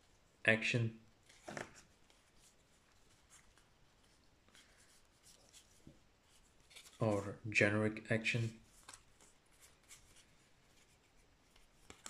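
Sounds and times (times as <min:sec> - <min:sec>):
trading cards rustling and clicking: 0:01.3 - 0:03.7, 0:06.6 - 0:07.3, 0:11.5 - 0:12.0.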